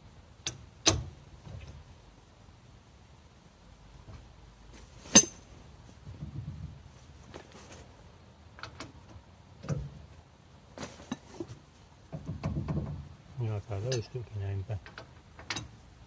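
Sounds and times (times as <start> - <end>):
brake drum rubbing rumble: 5.8 - 7.9.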